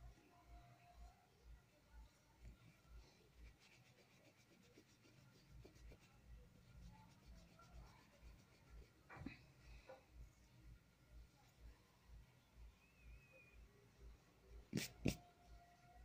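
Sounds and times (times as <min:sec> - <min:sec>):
pencil scratching on paper: 0:03.1 - 0:09.1.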